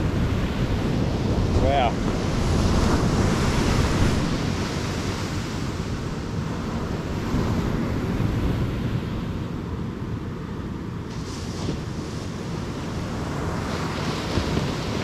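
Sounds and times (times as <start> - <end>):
waves washing: 0.0 - 15.0
wind buffeting microphone: 0.0 - 15.0.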